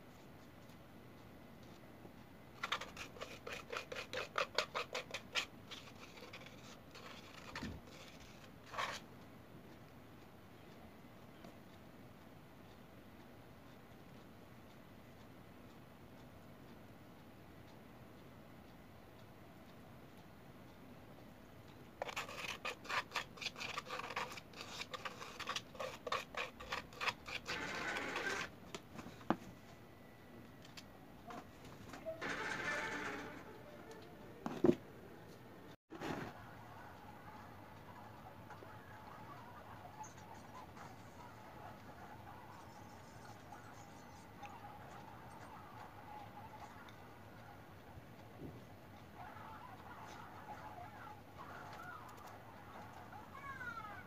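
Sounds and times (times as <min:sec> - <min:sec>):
plastic spoon scraping bowl: 0:02.6 - 0:09.0, 0:22.0 - 0:28.5.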